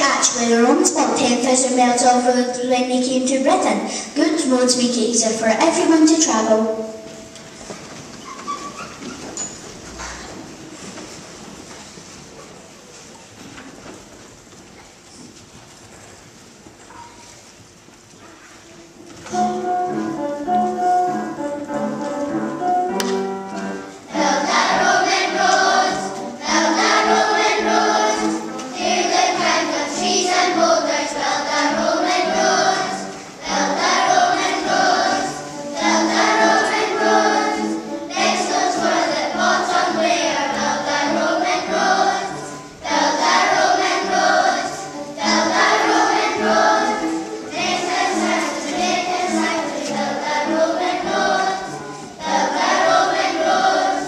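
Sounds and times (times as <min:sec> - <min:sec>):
children's choir singing: 0:00.0 - 0:07.9, 0:18.3 - 0:54.0
instrumental accompaniment: 0:18.6 - 0:54.0.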